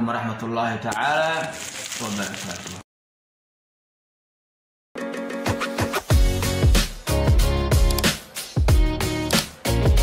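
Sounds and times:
music with a beat: 0:05.0 - 0:10.0.

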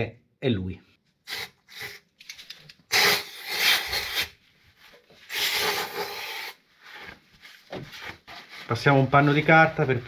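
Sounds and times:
paper towel rubbing: 0:03.4 - 0:10.0.

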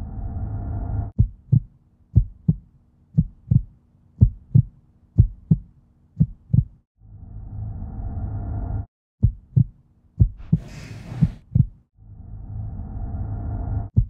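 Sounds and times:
heartbeat thumps: 0:01.1 - 0:06.8, 0:09.2 - 0:11.9.

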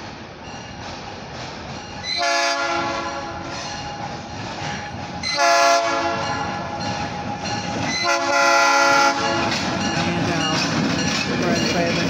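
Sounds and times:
train wheels: 0:00.0 - 0:12.0
locomotive air horn: 0:02.1 - 0:03.5, 0:05.3 - 0:06.4, 0:08.0 - 0:09.6
locomotive diesel engine: 0:03.9 - 0:12.0.

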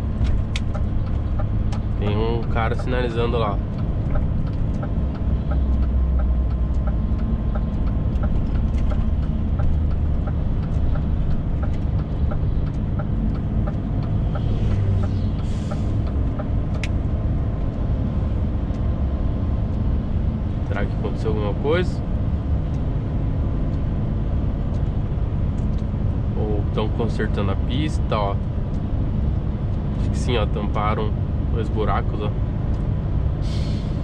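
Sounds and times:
truck engine and road rumble: 0:00.0 - 0:34.0
regular light ticking: 0:00.2 - 0:26.2
sharp click: 0:10.6 - 0:17.0
brief air hiss: 0:14.6 - 0:16.0, 0:33.4 - 0:34.0.

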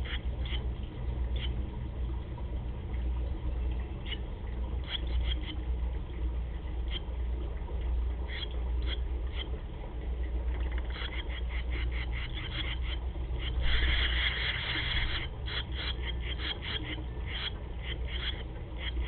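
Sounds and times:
low electrical hum: 0:00.0 - 0:19.0
nestlings chirping: 0:10.9 - 0:19.0.

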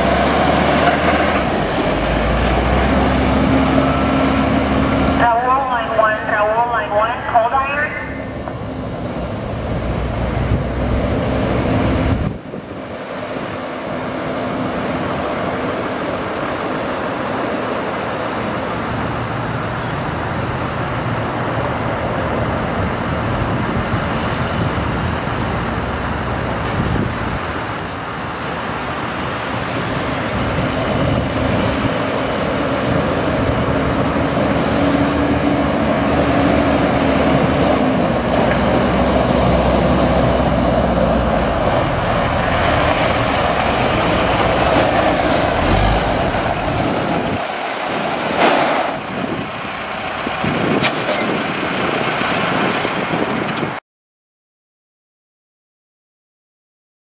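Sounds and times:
diesel engine drone: 0:00.0 - 0:53.8.

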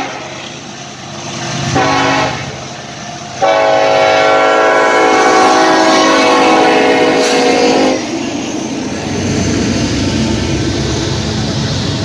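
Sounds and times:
locomotive air horn: 0:00.0 - 0:00.4, 0:01.7 - 0:02.6, 0:03.4 - 0:08.0
freight train rumbling past: 0:00.0 - 0:12.0.

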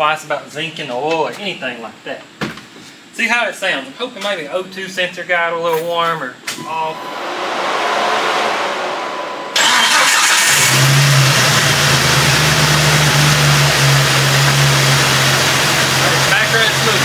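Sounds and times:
car engine running: 0:07.0 - 0:17.0.

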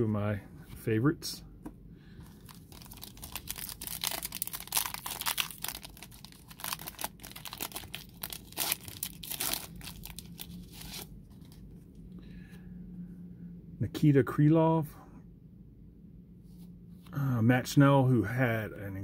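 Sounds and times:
foil wrapper tearing and crinkling: 0:02.4 - 0:11.1.

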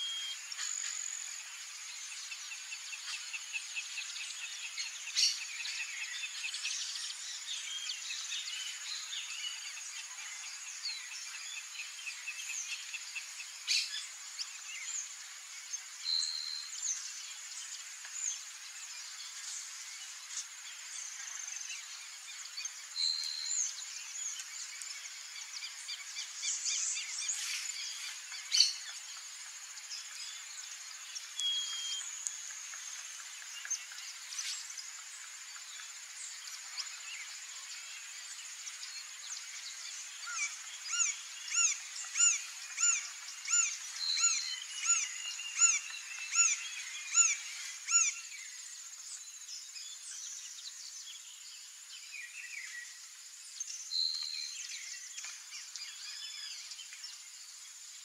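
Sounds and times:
bird chirps and whistled calls: 0:00.0 - 0:01.1, 0:31.3 - 0:32.1, 0:40.2 - 0:48.5.

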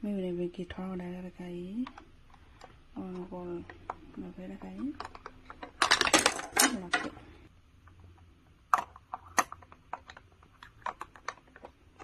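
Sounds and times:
plastic rubbing and scraping: 0:08.8 - 0:12.0.

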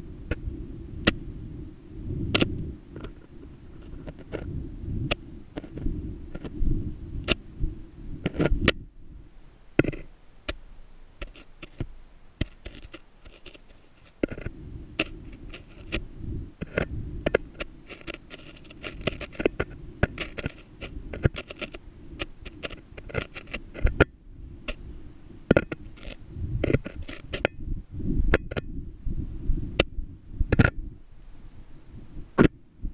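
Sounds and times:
low rumble: 0:00.0 - 0:09.4, 0:14.2 - 0:23.0.

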